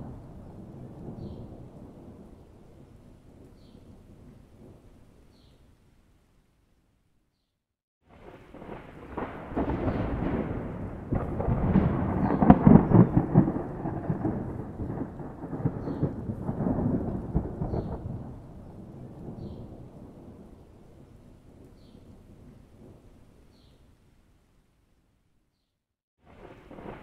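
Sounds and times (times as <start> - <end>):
rolling thunder rumble: 0.0 - 5.2, 8.1 - 23.2, 26.2 - 27.0.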